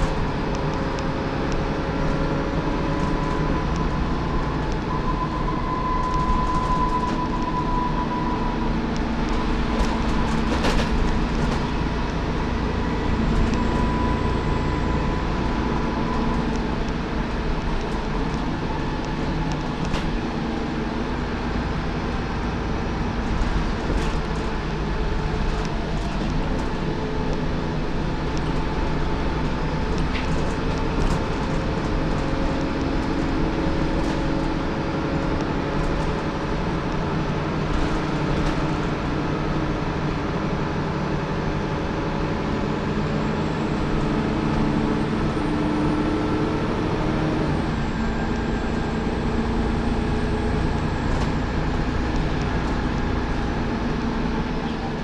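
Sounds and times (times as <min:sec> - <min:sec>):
bus engine and road rumble: 0:00.0 - 0:55.0
body rattles and clicks: 0:09.2 - 0:12.2, 0:23.2 - 0:39.0.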